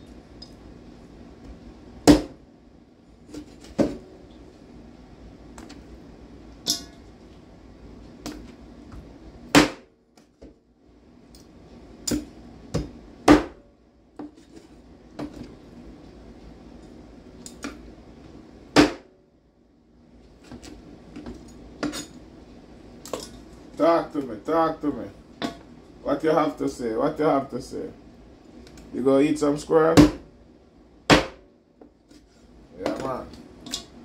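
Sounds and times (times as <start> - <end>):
cleaver chopping on cutting board: 30.0 - 30.2, 31.1 - 31.4.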